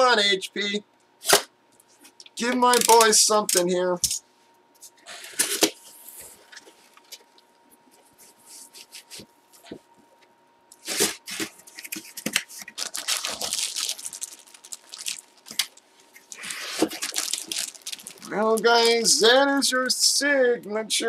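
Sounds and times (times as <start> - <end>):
plastic bag crinkling: 10.8 - 19.3.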